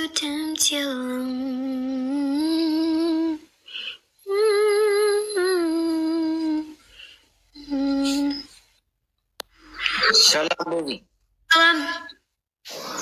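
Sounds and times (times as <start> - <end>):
woman humming a slow tune: 4.3 - 6.8, 7.6 - 8.6.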